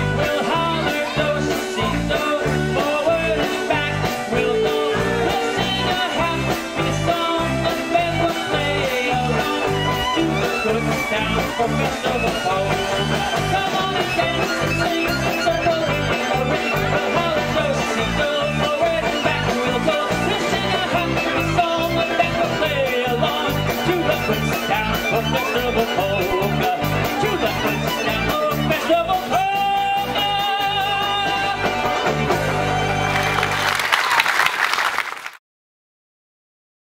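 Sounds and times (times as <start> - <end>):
polka band playing: 0.0 - 35.2
audience applause: 32.5 - 35.4.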